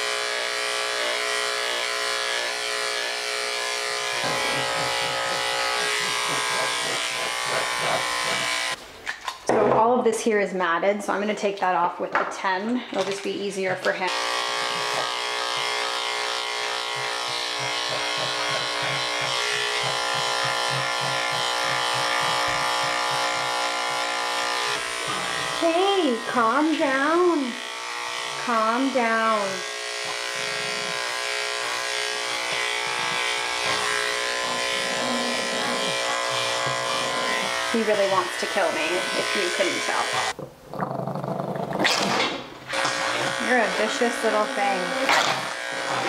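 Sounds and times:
electric clipper motor hum: 0.0s - 8.8s, 13.8s - 40.4s, 42.7s - 46.0s.

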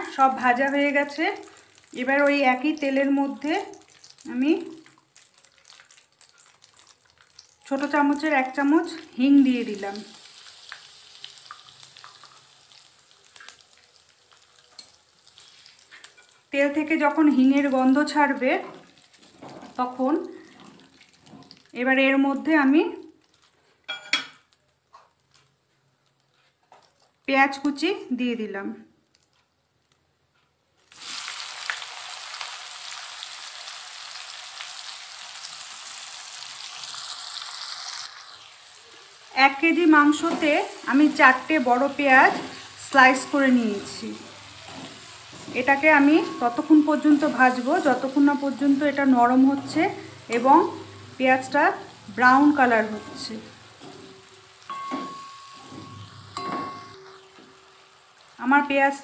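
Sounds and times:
spice sizzling in hot oil: 0.0s - 25.5s, 30.8s - 59.0s
spatula stirring in pan: 20.4s - 21.7s, 38.1s - 58.4s.

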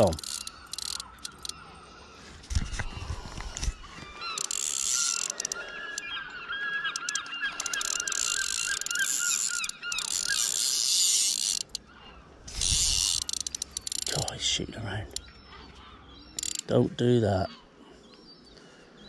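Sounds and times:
fishing line squealing off drag: 0.0s - 1.6s, 4.3s - 6.0s, 6.8s - 11.8s
reel gears whirring: 0.0s - 1.6s, 4.3s - 6.0s, 6.8s - 11.8s, 12.5s - 14.3s, 16.4s - 16.7s.

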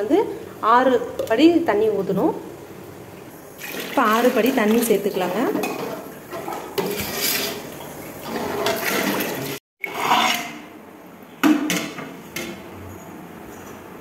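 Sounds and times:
water splashing in a pot: 3.4s - 10.6s.

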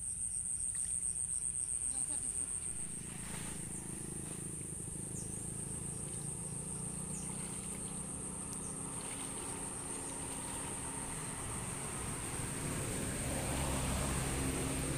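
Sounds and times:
low steady rumble: 0.0s - 14.9s.

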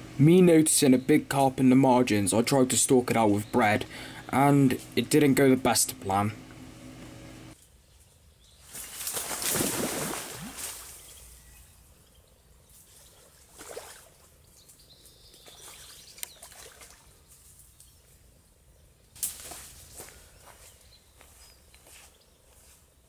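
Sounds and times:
water splashing: 8.8s - 11.1s, 13.2s - 14.4s, 16.4s - 17.1s.

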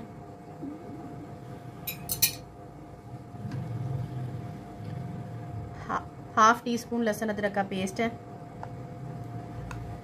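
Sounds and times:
faint steady hum: 0.0s - 10.0s
utensil clinking against bowl: 1.9s - 2.5s.

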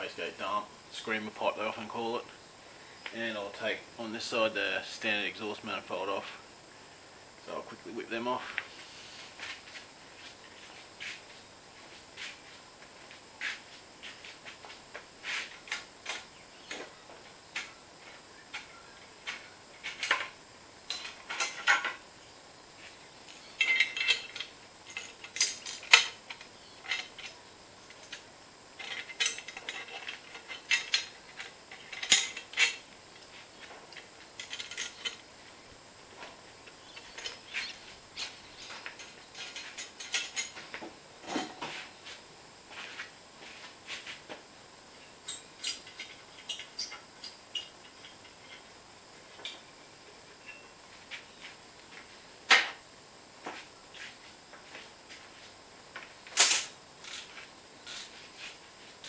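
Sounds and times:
metal exhaust parts clinking: 23.6s - 27.3s, 28.8s - 32.8s, 45.3s - 48.7s
sharp metallic clank: 56.4s - 56.7s.

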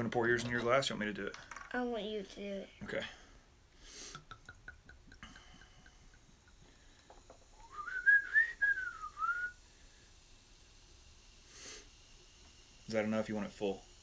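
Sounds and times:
soft fizz: 3.8s - 14.0s
cola pouring into a glass: 4.1s - 12.9s
whistling tone: 7.6s - 9.6s.

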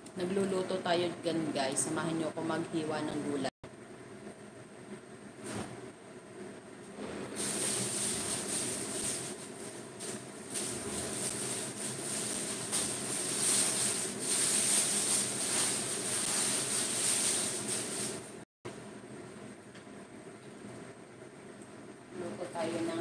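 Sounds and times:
chicken sizzling in a frying pan: 7.4s - 18.4s.

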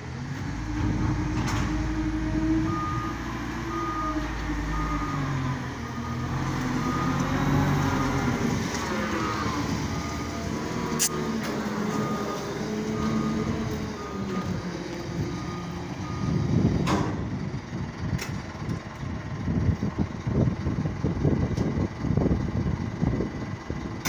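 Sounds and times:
diesel engine running: 0.0s - 24.0s
low rumbling: 0.0s - 24.0s
reversing alarm beeping: 0.8s - 16.8s.

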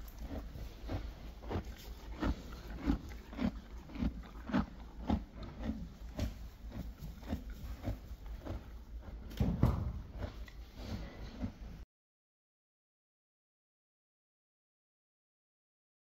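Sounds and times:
horse munching hay: 0.0s - 11.8s.

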